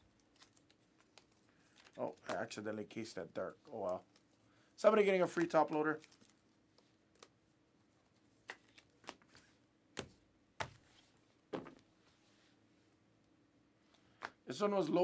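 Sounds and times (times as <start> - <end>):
trading cards clicking and rustling: 0.2 - 4.3, 4.9 - 6.4.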